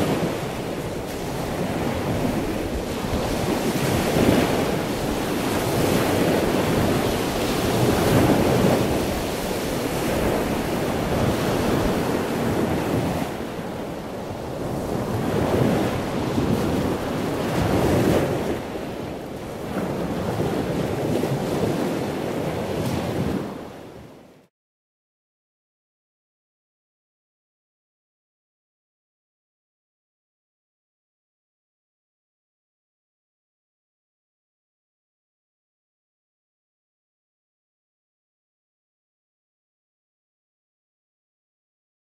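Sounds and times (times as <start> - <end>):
ocean waves washing in and out: 0.0 - 24.5.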